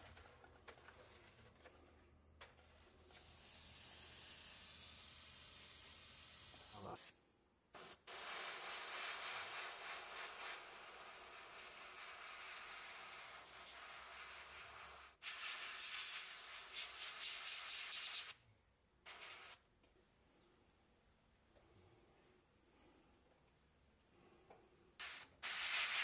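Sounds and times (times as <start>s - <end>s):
airbrush spraying hiss: 3.1s - 7.2s, 7.8s - 18.4s, 19.1s - 19.6s, 25.0s - 26.0s.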